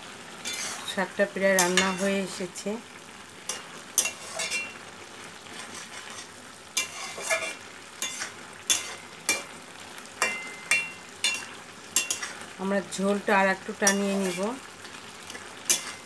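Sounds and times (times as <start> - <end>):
curry sizzling: 0.0 - 16.0
metal spatula clinking on pan: 1.6 - 2.0, 3.5 - 4.7, 6.8 - 9.5, 10.2 - 12.4, 13.9 - 14.4, 15.7 - 16.0.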